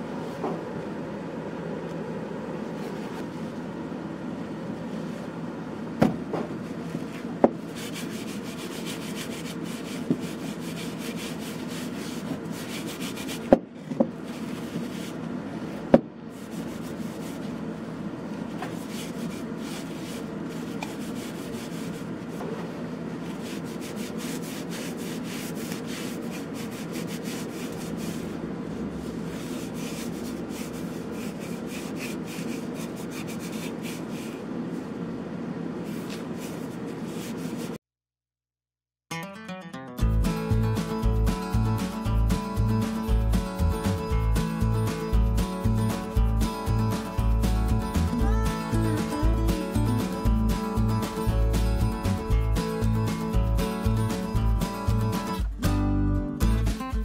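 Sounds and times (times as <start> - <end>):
cloth rubbing wooden bowl: 7.7 - 13.6, 14.2 - 15.3, 16.3 - 17.6, 18.6 - 34.5, 35.8 - 37.8.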